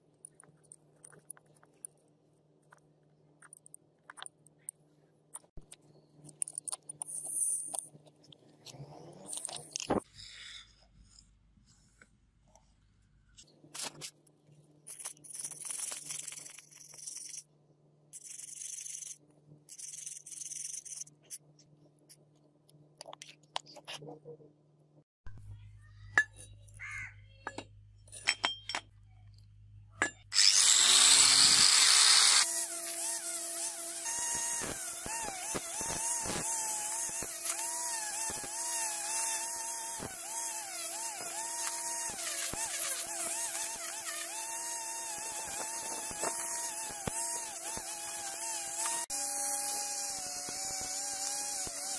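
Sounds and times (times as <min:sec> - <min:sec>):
angle grinder whining: 0:30.3 - 0:51.9.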